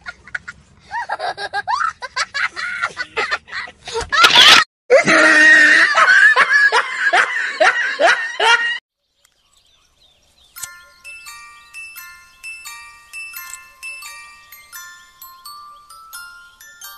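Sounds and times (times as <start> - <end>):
person laughing loudly: 0.0 - 8.8
chiming mallet jingle: 10.4 - 16.9.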